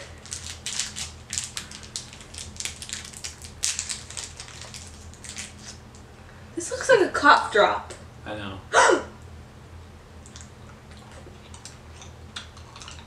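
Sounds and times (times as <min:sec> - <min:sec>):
plastic wrappers crinkling: 0:00.0 - 0:05.8.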